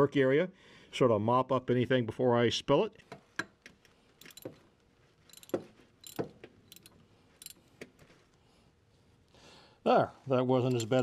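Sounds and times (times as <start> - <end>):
metallic clicks of a wrench: 3.4 - 4.6, 5.3 - 7.6, 10.6 - 11.0.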